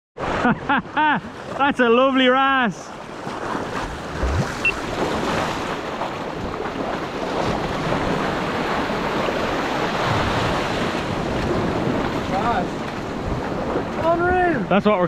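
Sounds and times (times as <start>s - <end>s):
sea waves washing over rocks: 1.2s - 15.0s
wind buffeting microphone: 3.2s - 15.0s.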